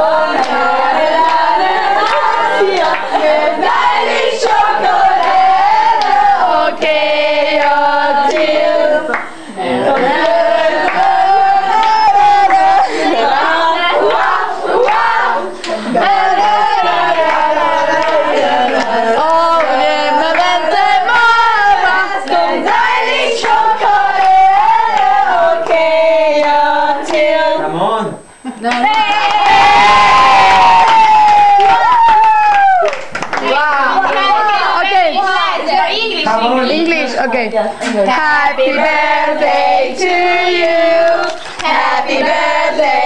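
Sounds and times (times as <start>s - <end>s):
group singing unaccompanied: 0.0s - 28.0s, 33.4s - 36.8s, 37.9s - 43.0s
hand clapping: 30.9s - 34.2s.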